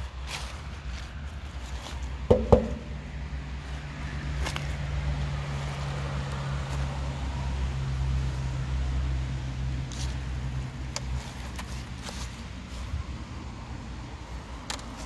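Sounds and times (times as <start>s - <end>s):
sharp metallic knocks: 2.3s - 3.1s.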